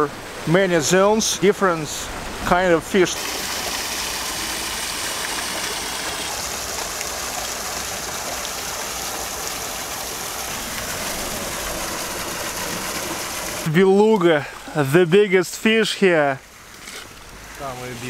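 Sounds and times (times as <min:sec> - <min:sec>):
fish splashing in pond: 0:03.2 - 0:13.7.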